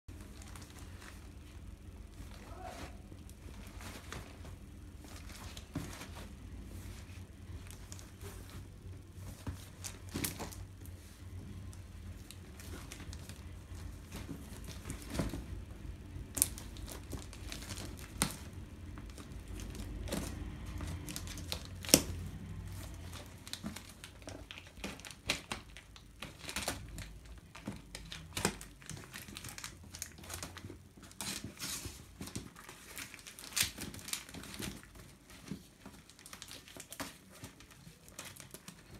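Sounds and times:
plastic bag crinkling: 0.1 - 38.9
plastic tearing: 16.3 - 38.9.

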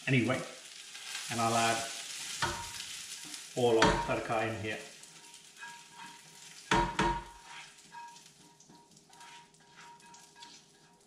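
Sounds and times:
oil sizzling: 0.0 - 11.0
spatula scraping pan: 0.9 - 11.0
loud knocks against pan: 6.7 - 7.4.

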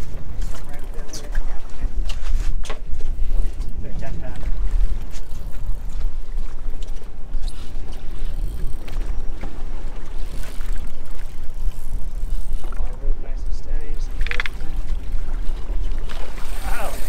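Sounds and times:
boat on open water: 0.0 - 17.0
wind buffeting microphone: 0.0 - 17.0
faint clicks: 14.1 - 14.6.

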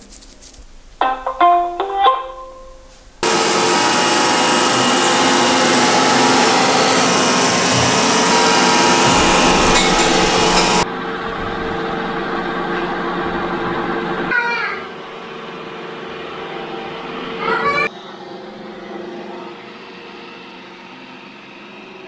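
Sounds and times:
robot vacuum whirring: 3.2 - 10.8.

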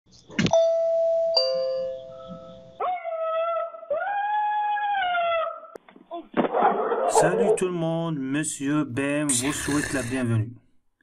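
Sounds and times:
two-note doorbell chime: 0.6 - 2.6
dog howling: 2.8 - 5.8.

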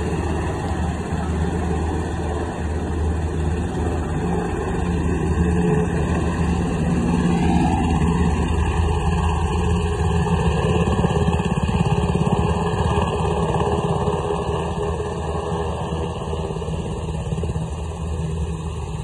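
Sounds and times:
helicopter flying low: 0.0 - 19.0.

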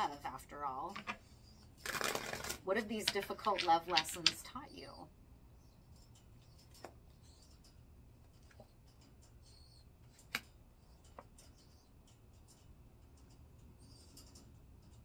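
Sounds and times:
cards clicking and tapping: 1.9 - 4.4.

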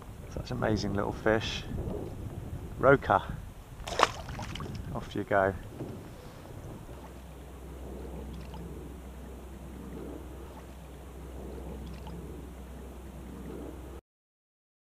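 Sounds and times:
small waves lapping against hull: 0.0 - 14.0
wind on microphone: 0.0 - 14.0.

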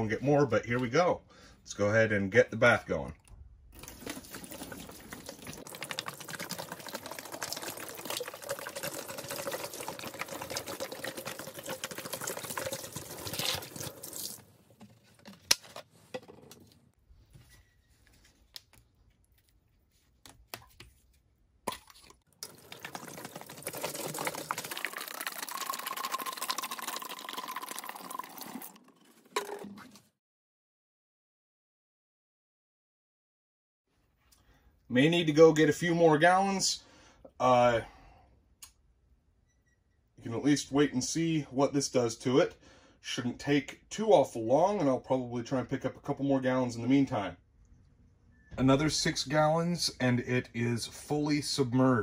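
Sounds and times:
dripping: 3.2 - 14.9, 21.8 - 29.5
liquid pouring into plastic tub: 3.7 - 14.9, 22.3 - 29.7.

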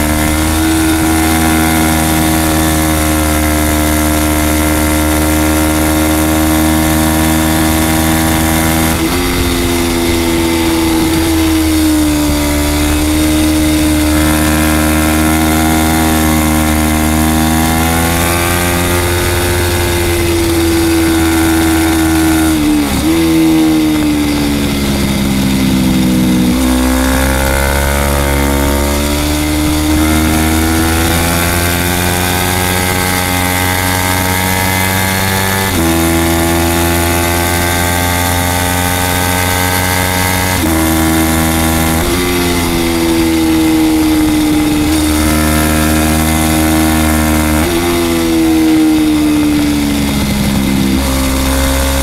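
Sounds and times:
motorcycle engine at high revs: 0.0 - 52.0
wind rush: 6.5 - 36.7, 38.4 - 52.0.

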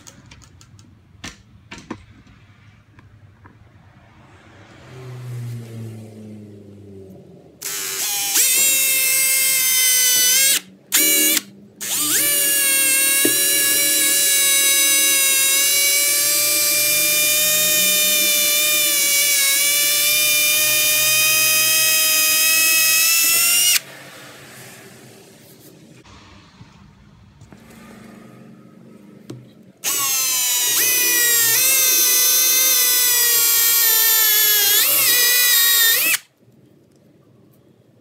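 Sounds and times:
cordless drill whine: 7.6 - 23.8, 29.8 - 36.3.

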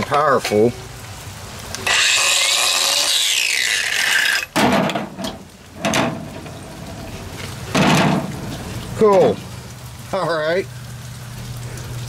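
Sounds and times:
tool handling clunks: 4.6 - 6.6.

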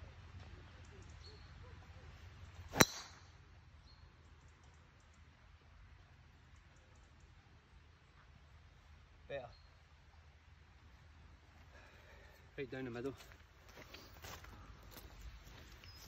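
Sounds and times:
golf club striking ball: 2.7 - 3.3.

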